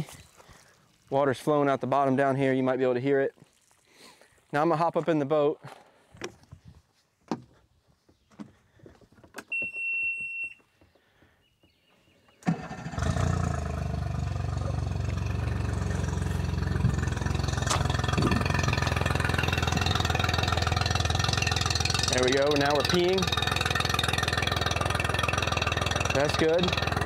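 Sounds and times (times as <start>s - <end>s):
high beep: 9.5s - 10.6s
outboard motor starting and idling: 12.4s - 27.0s.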